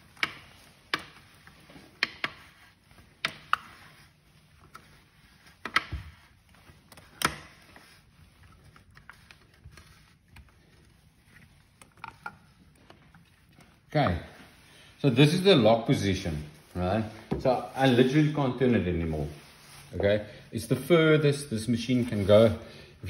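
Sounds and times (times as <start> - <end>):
faint handling: 0.0 - 23.0.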